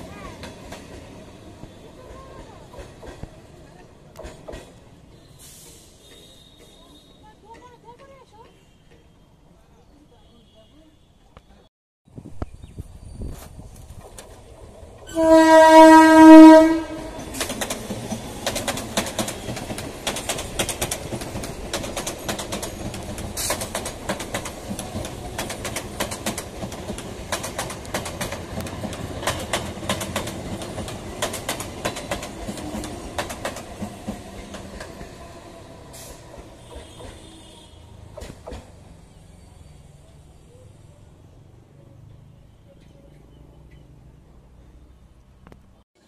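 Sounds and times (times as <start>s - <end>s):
train horn blast: 15.1s - 17.4s, 35.8s - 38.1s
train wheels clattering over joints: 17.0s - 35.3s.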